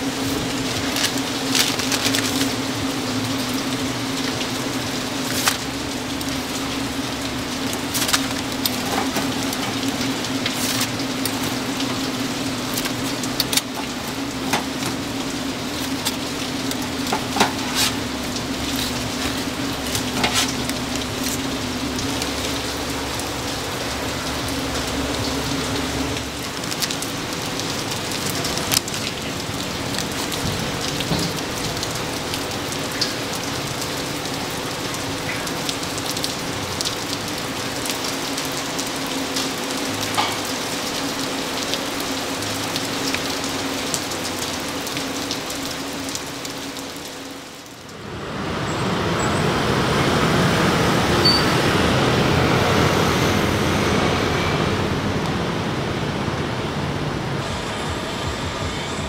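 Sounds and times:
steady low hum: 0.0 - 32.8, 51.8 - 59.0
deep-frying sizzle with pops: 0.0 - 48.0.

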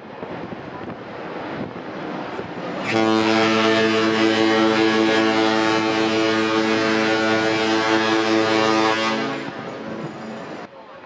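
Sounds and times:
ship's horn blast: 2.8 - 10.6.

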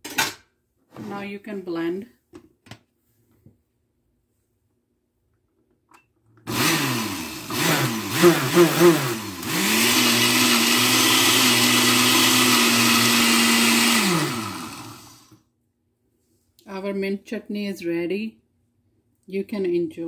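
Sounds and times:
blender grinding: 6.4 - 15.4.

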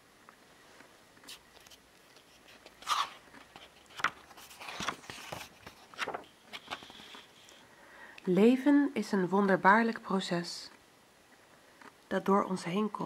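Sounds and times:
book page rustling: 1.2 - 7.6.

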